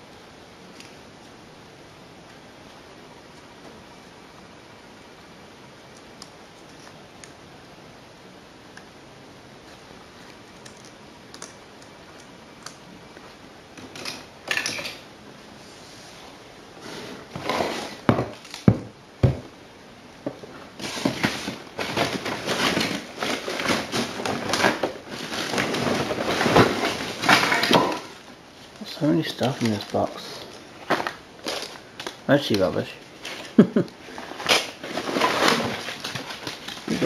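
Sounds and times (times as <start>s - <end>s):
room hiss: 0.0s - 37.0s
junk rustling and clattering: 20.3s - 32.1s, 33.2s - 37.0s.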